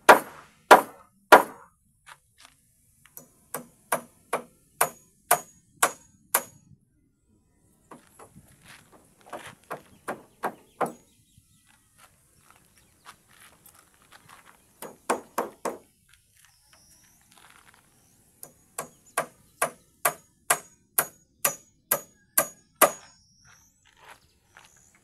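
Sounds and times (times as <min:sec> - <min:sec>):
hammer driving nails into wood: 0:00.1 - 0:01.6, 0:03.2 - 0:06.6, 0:14.8 - 0:15.8, 0:18.4 - 0:23.0.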